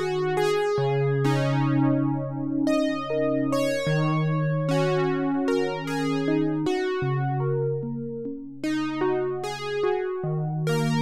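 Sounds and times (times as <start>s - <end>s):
synthesizer chords: 2.7s - 11.0s.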